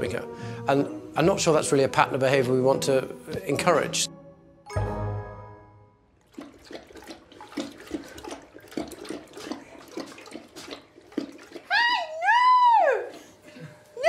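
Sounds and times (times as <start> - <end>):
dog lapping water: 6.2 - 12.1.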